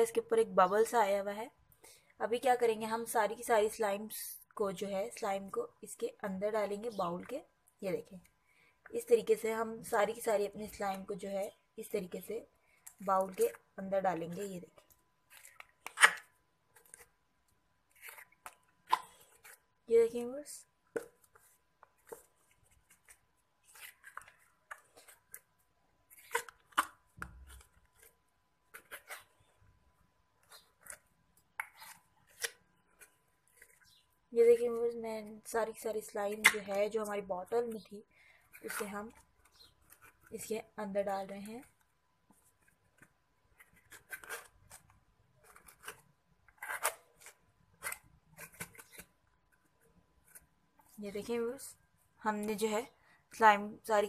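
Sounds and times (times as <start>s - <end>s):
plastic bottle crinkling: 21.0s - 29.6s.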